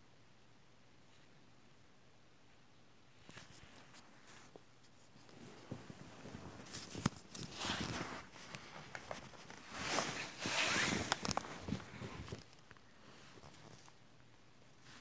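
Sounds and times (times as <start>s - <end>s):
rustling and handling noises: 3.1s - 15.0s.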